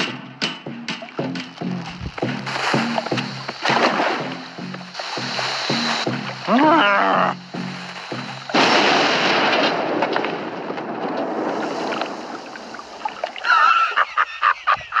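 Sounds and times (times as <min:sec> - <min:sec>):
cartoon dynamite explosion: 0:03.6 - 0:07.3, 0:08.0 - 0:12.7.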